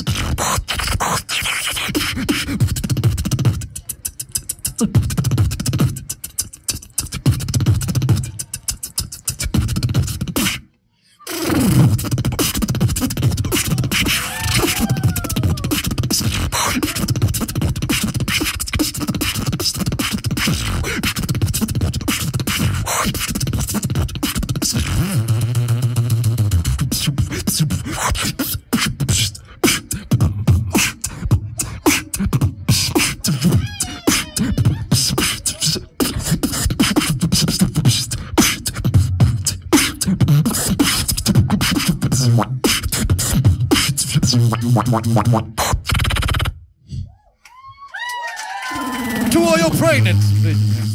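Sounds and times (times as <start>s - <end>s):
whistle-like vocal glides: 0.0s - 21.2s
person beatboxing into microphone: 0.0s - 47.1s, 49.2s - 50.9s.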